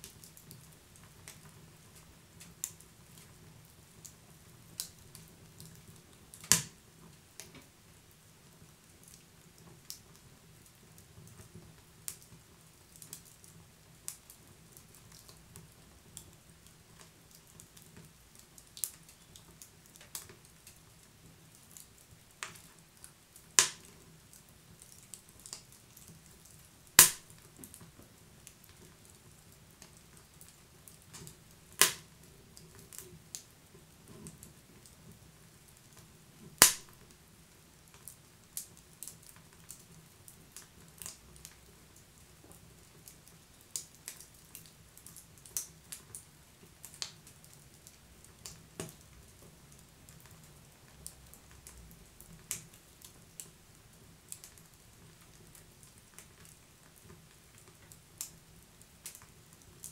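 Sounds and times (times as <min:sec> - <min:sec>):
wood fire crackling: 0:00.0 - 0:59.9
fire popping loudly: 0:06.4 - 0:06.8, 0:23.6 - 0:23.9, 0:27.0 - 0:27.6, 0:31.1 - 0:32.2, 0:36.5 - 0:37.0.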